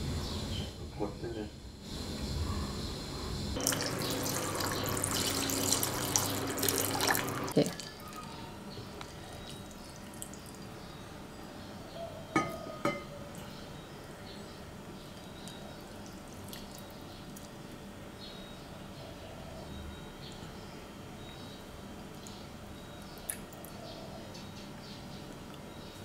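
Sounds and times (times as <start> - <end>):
water running: 3.6 - 8.0
wet noodles dripping: 3.6 - 8.2, 8.9 - 10.8, 15.1 - 17.7, 23.0 - 23.8.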